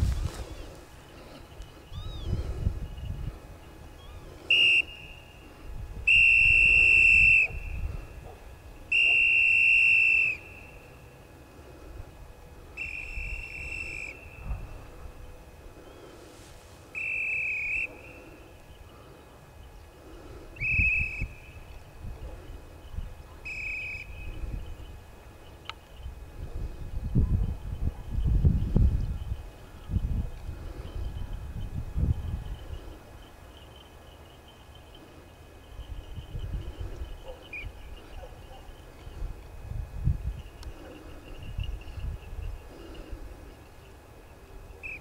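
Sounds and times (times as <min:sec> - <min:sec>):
whistle blasts: 0:04.5 - 0:05.4, 0:06.1 - 0:07.8, 0:08.9 - 0:11.0, 0:12.8 - 0:14.6, 0:16.9 - 0:18.2, 0:20.6 - 0:21.6, 0:23.4 - 0:24.4.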